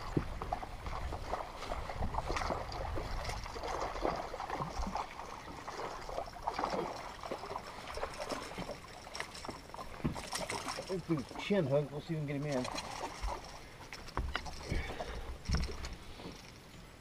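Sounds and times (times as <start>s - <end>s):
wind rumble on microphone: 0.0s - 5.0s
fish splashing: 0.0s - 11.5s, 12.6s - 16.2s
water lapping against boat hull: 0.0s - 16.6s.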